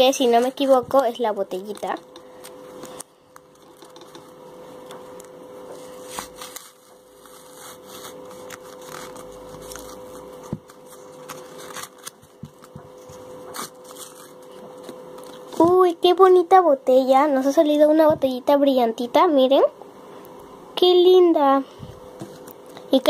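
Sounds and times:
paper rustling and crinkling: 0.2s - 4.4s, 5.2s - 15.7s
paper tearing: 5.8s - 12.8s, 13.4s - 15.6s.

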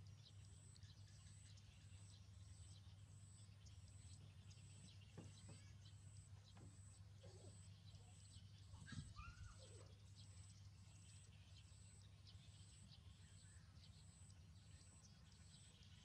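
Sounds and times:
faint low hum: 0.0s - 16.0s
faint squeaking call: 7.2s - 9.9s.

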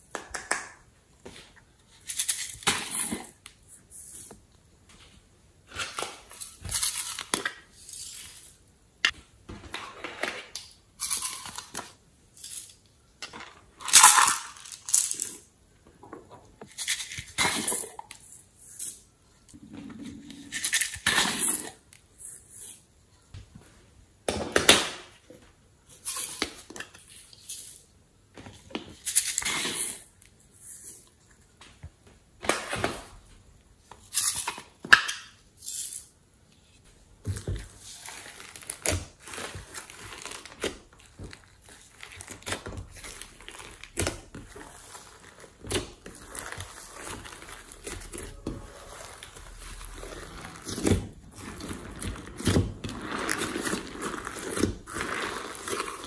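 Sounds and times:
slime squishing and crackling: 37.3s - 56.0s.

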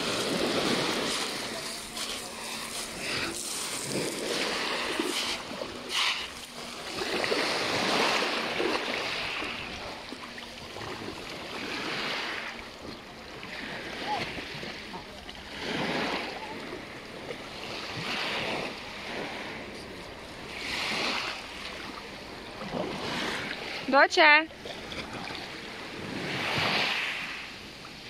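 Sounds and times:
sharp water splashes: 0.0s - 12.6s
feet wading in water: 0.0s - 23.9s, 24.5s - 27.4s
small waves on pebble shore: 0.0s - 28.0s.

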